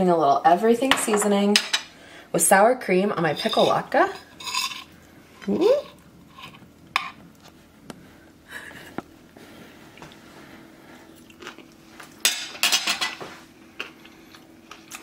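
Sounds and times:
person chewing food: 0:10.9 - 0:12.2, 0:13.6 - 0:15.0.

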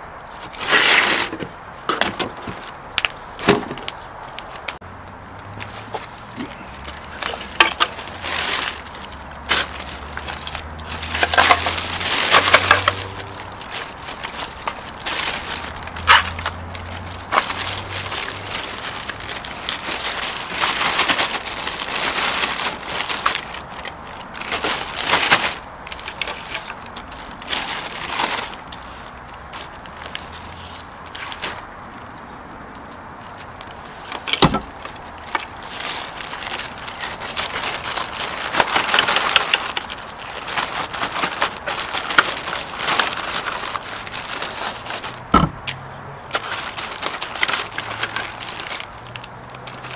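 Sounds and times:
plastic bag rustling: 0:00.3 - 0:04.8, 0:05.4 - 0:31.7, 0:33.2 - 0:45.5, 0:46.2 - 0:49.9
debris clicking and clattering: 0:06.8 - 0:28.7, 0:34.1 - 0:45.2.

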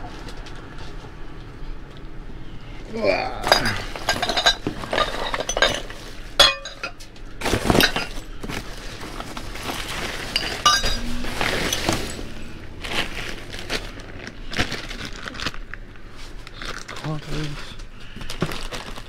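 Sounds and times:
hard objects clinking together: 0:03.4 - 0:13.2.

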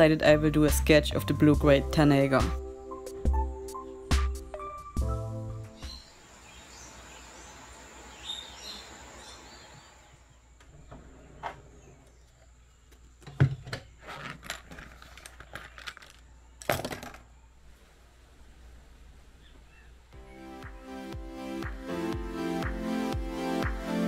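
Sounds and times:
faint bird chirps: 0:05.7 - 0:13.0, 0:19.3 - 0:20.9
steady rain hiss: 0:06.0 - 0:10.5, 0:17.6 - 0:20.2.

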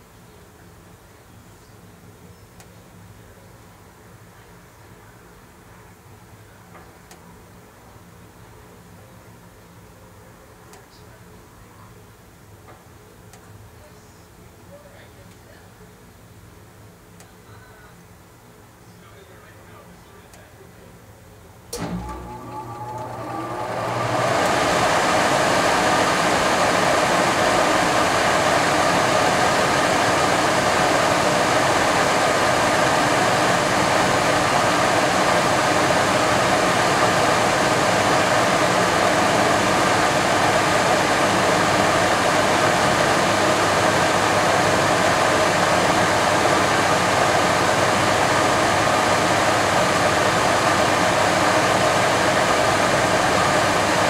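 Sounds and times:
furnace blower running: 0:21.7 - 0:54.0.

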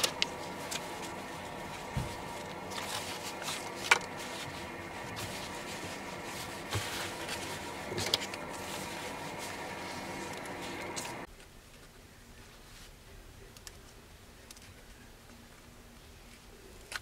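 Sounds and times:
jacket fabric rustling: 0:00.0 - 0:11.3
steady background hum: 0:00.0 - 0:17.0.

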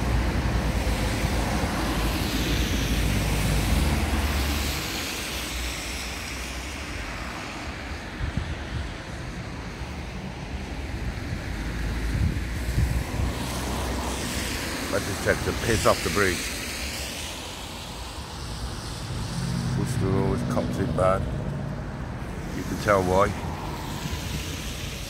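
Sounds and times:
vehicle passing on wet road: 0:00.0 - 0:25.0
tyre hiss: 0:13.2 - 0:20.4, 0:22.4 - 0:25.0.

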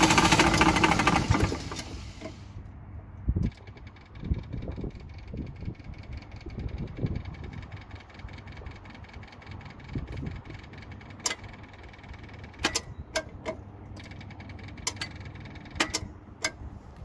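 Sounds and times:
compressor idling: 0:00.0 - 0:02.7, 0:03.4 - 0:17.0
sharp clicks: 0:03.4 - 0:16.6.

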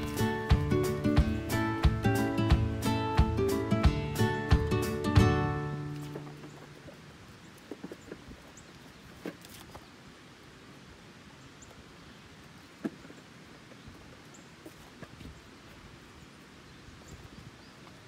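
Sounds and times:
hooves knocking on wooden logs: 0:00.0 - 0:09.9, 0:12.7 - 0:15.4.

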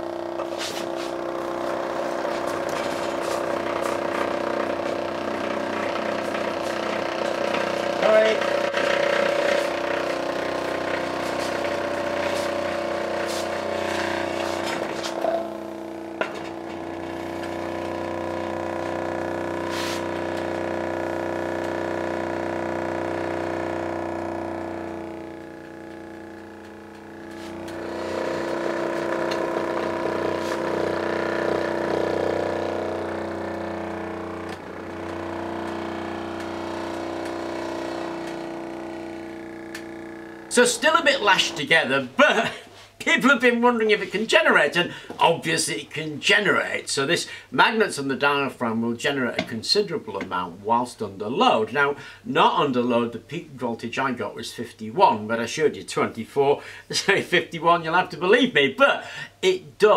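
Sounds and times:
engine buzzing: 0:00.0 - 0:42.8.

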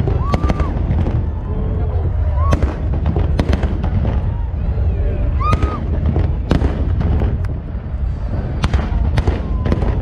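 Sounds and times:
sharp firework bangs: 0:00.0 - 0:01.4, 0:02.4 - 0:04.5, 0:05.4 - 0:10.0
low booming of firework shells: 0:02.4 - 0:04.5, 0:05.5 - 0:10.0.

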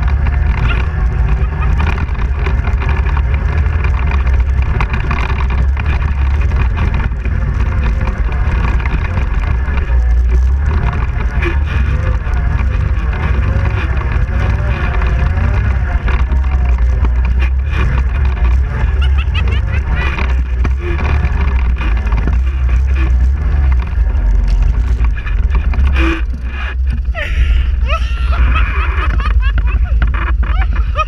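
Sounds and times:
atv engine rumbling: 0:00.0 - 0:31.0.

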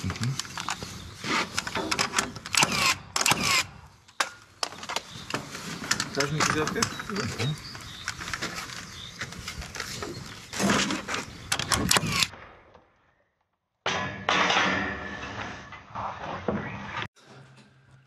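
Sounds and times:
nail gun firing into timber: 0:01.9 - 0:03.7.

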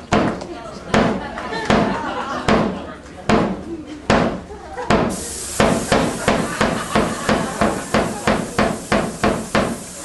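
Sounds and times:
percussion beat: 0:04.9 - 0:09.8
steady hiss: 0:04.9 - 0:10.0.

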